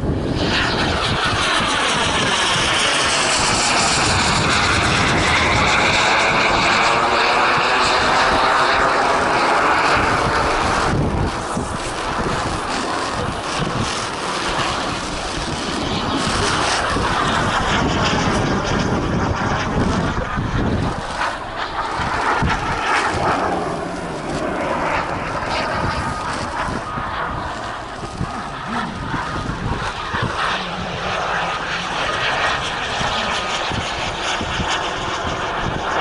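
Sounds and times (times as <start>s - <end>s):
aircraft engine passing overhead: 0.0s - 36.0s
wind rumble on microphone: 0.0s - 36.0s.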